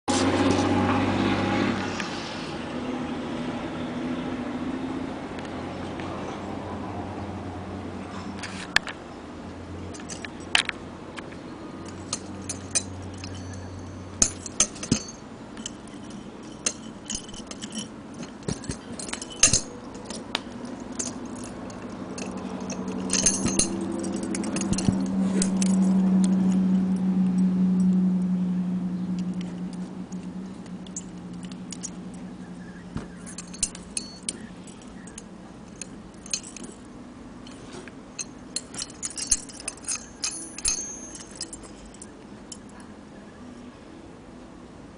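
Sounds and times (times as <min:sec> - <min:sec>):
low hum: 0:09.3 - 0:42.9
metal spurs clinking: 0:09.9 - 0:28.0, 0:29.2 - 0:42.9.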